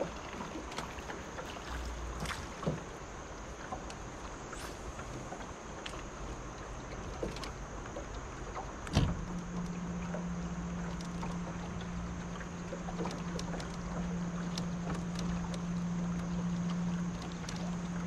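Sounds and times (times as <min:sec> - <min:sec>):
electric motor low hum: 0:00.0 - 0:18.0
light ticks: 0:05.8 - 0:18.0.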